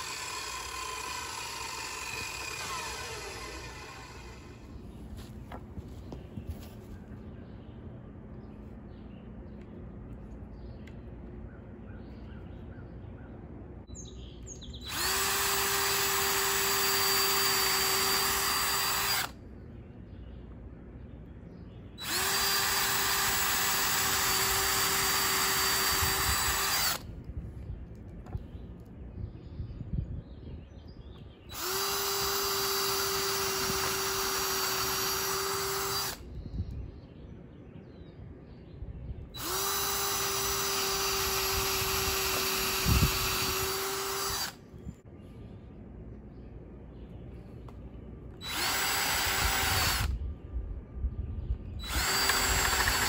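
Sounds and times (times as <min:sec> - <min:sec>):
cordless drill driving screws: 0:00.0 - 0:04.8, 0:14.9 - 0:19.4, 0:22.0 - 0:27.0, 0:31.5 - 0:36.2, 0:39.4 - 0:44.6, 0:48.4 - 0:50.1, 0:51.8 - 0:53.0.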